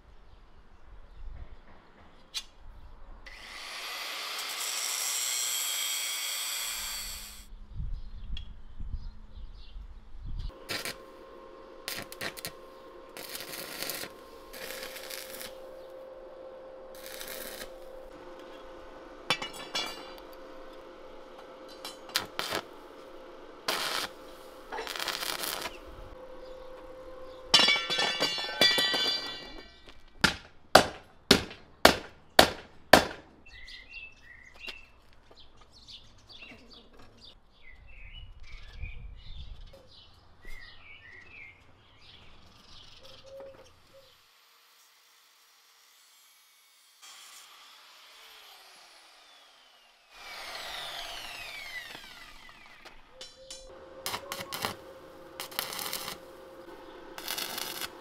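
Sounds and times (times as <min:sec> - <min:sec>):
crackling welding arc: 0:03.3 - 0:07.5, 0:10.5 - 0:11.2, 0:11.9 - 0:15.8, 0:16.9 - 0:18.5, 0:20.1 - 0:26.1, 0:50.5 - 0:58.0
welding electrical hum: 0:10.5 - 0:27.6, 0:50.2 - 0:58.0
birds chirping: 0:25.7 - 0:29.9, 0:33.4 - 0:44.3, 0:50.7 - 0:55.0.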